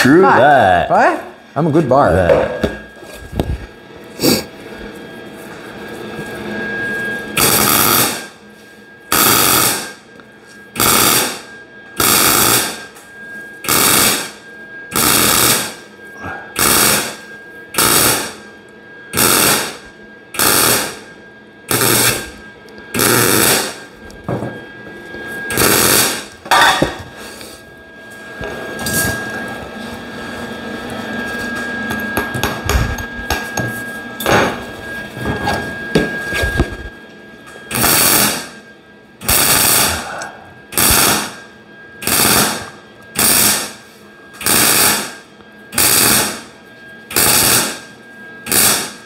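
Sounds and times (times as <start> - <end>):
welder tack weld bursts: 7.4 - 8.3, 9.1 - 9.9, 10.8 - 12.8, 13.7 - 15.8, 16.6 - 17.2, 17.8 - 18.4, 19.2 - 19.8, 20.4 - 21.0, 21.7 - 22.2, 23.0 - 23.8, 25.5 - 26.3, 37.7 - 38.5, 39.2 - 40.0, 40.8 - 41.4, 42.0 - 43.8, 44.4 - 45.2, 45.8 - 46.4, 47.1 - 47.8, 48.5 - 49.0.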